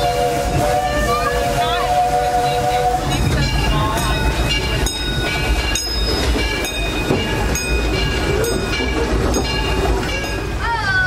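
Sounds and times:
steam train rumbling: 0:00.0 - 0:11.0.

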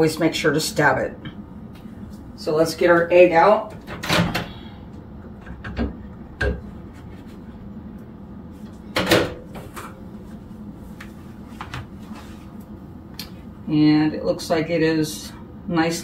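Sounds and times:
microwave door clicks and knocks: 0:09.0 - 0:09.4.

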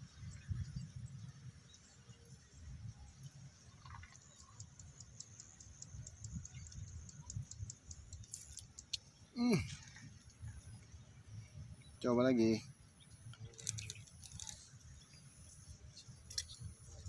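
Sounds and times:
faint high ticks: 0:03.0 - 0:10.6.

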